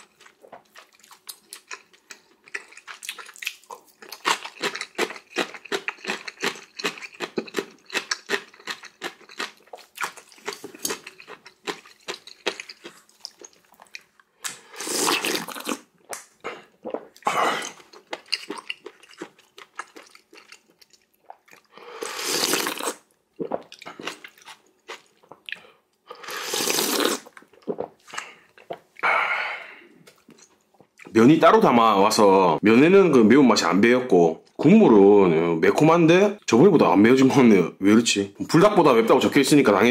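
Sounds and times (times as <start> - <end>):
wet chewing and mouth clicks: 0.0 - 21.7
loud noodle slurps: 14.6 - 15.8, 22.0 - 23.6, 26.1 - 27.8.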